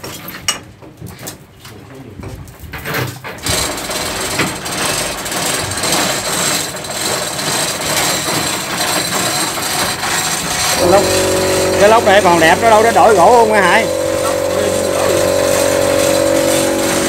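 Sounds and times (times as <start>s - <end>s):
power tool running harshly: 3.6s - 17.0s.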